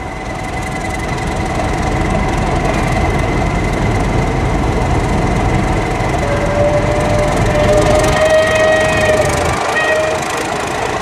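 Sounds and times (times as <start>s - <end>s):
diesel locomotive engine rumble: 0.0s - 11.0s
train wheels squealing: 5.8s - 11.0s.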